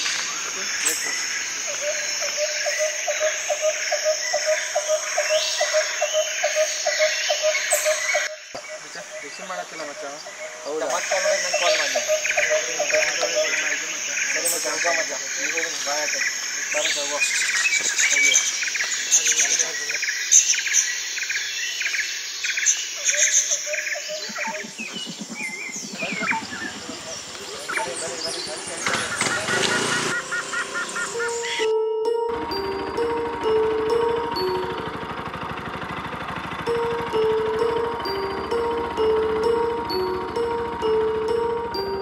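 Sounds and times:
insects chirping: 0:00.0 - 0:31.7
birds chirping: 0:00.0 - 0:31.8
music with ticking pulse: 0:01.7 - 0:15.9, 0:23.5 - 0:28.5, 0:29.8 - 0:42.0.

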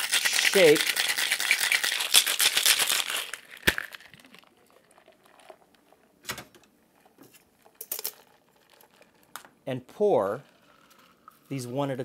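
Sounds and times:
ice rattling in cocktail shaker: 0:00.0 - 0:05.7, 0:07.6 - 0:09.3.

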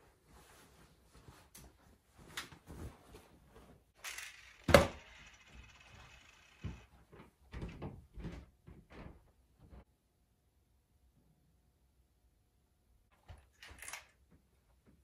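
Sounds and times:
shirt rustling: 0:00.0 - 0:03.9.

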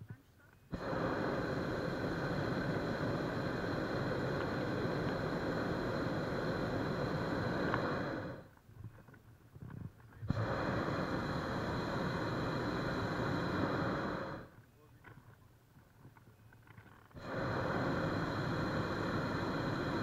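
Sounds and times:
propane burner firing: 0:00.7 - 0:08.5, 0:10.3 - 0:14.6, 0:17.1 - 0:20.0.

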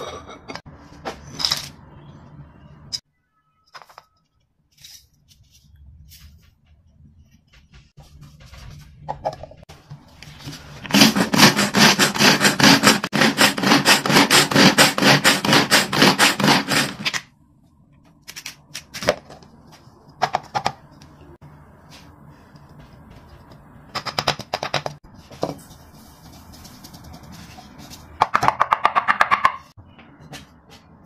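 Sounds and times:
food chopper blades rattling: 0:10.9 - 0:17.2.

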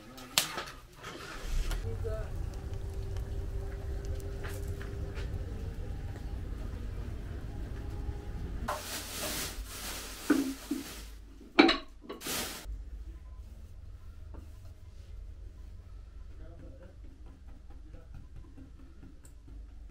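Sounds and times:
low rumble: 0:01.3 - 0:10.3
plastic rustling: 0:08.6 - 0:11.4, 0:12.2 - 0:12.7.

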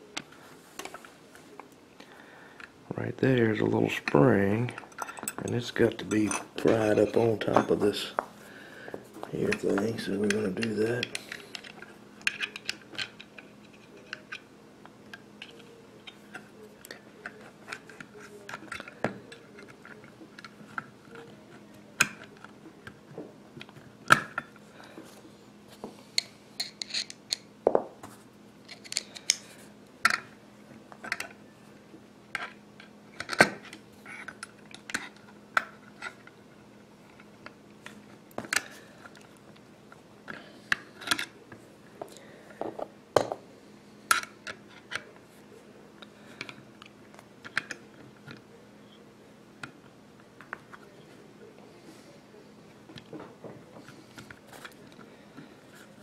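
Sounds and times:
faint steady hum: 0:00.0 - 0:56.0
metal tool clicking and scraping: 0:26.2 - 0:27.4.

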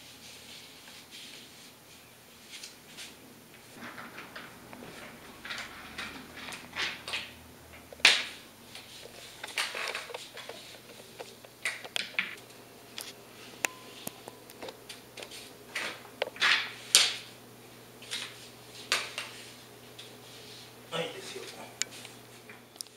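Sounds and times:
brush strokes on paper: 0:00.0 - 0:03.2, 0:18.4 - 0:22.0.

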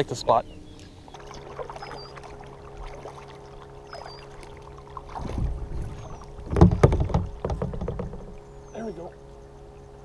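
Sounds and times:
faint high chirp: 0:00.1 - 0:02.4, 0:03.8 - 0:04.5
paddle splashing water: 0:01.1 - 0:09.3
low rumble: 0:04.4 - 0:08.7.

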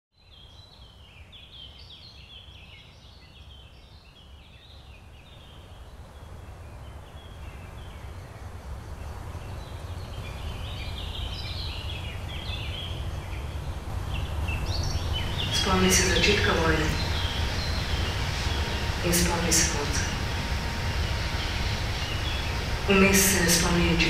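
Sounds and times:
birds chirping: 0:04.2 - 0:24.0
low rumbling noise: 0:05.3 - 0:24.0.

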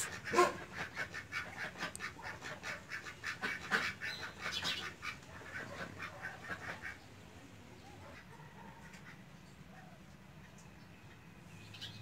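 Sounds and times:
ducks calling: 0:00.0 - 0:07.1.

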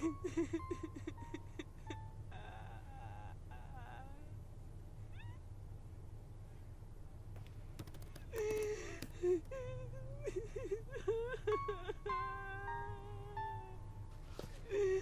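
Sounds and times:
low steady hum: 0:00.0 - 0:15.0
wavering cat-like cries: 0:02.3 - 0:04.4, 0:05.0 - 0:05.5, 0:08.3 - 0:13.8
sharp clicks: 0:07.4 - 0:09.5.

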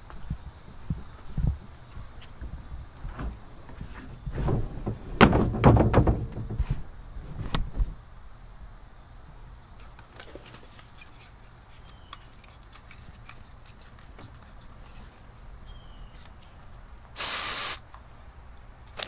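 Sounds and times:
plastic bin lid banging: 0:04.4 - 0:06.7.

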